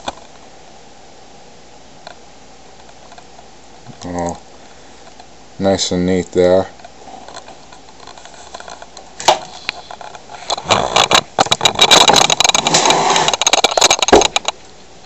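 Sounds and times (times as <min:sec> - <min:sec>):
sharp clicks and knocks: 0:06.8 - 0:14.6
handling noise rustling and scraping: 0:06.8 - 0:14.9.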